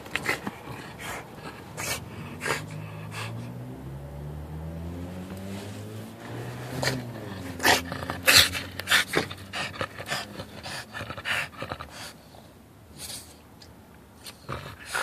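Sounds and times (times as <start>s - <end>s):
dog panting and snorting: 0.0s - 3.8s, 6.3s - 13.5s, 14.2s - 15.0s.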